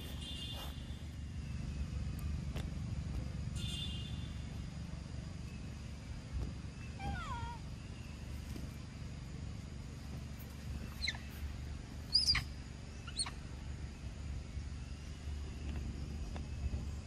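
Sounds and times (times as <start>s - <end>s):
macaque squeaking: 11.0s - 11.4s, 12.1s - 13.4s.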